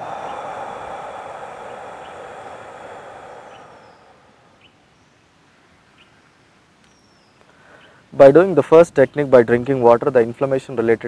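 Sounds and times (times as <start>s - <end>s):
deep exhalation through mouth: 0.0s - 4.7s
faint bird chirps: 0.1s - 8.1s.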